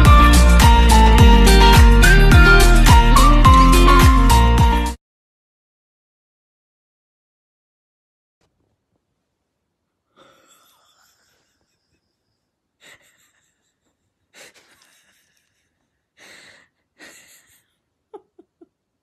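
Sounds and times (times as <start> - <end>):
breathy huffs: 10.1 - 12.2, 16.2 - 17.8.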